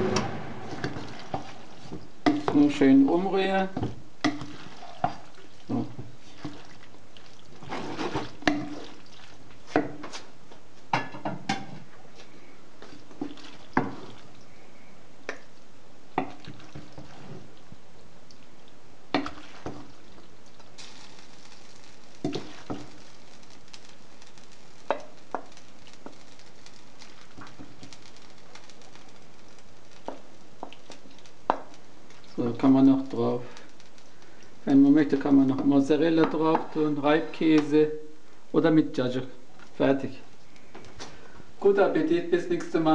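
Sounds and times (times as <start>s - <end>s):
wooden spoon scraping a pan: 0.0s - 2.8s, 3.7s - 10.3s, 12.8s - 14.4s, 16.2s - 17.6s, 19.2s - 20.2s, 20.8s - 23.4s.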